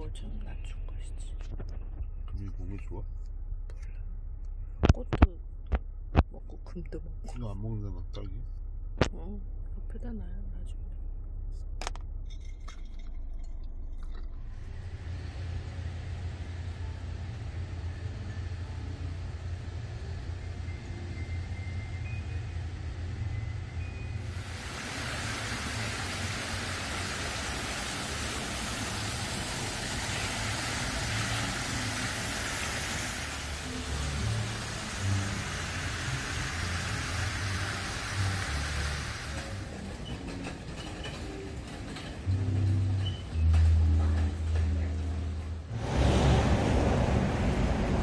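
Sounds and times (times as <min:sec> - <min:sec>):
soft background music bass: 0:00.0 - 0:24.8, 0:33.2 - 0:46.4
outdoor ambience rumble: 0:00.0 - 0:48.0
fountain water jets splashing: 0:24.3 - 0:39.9.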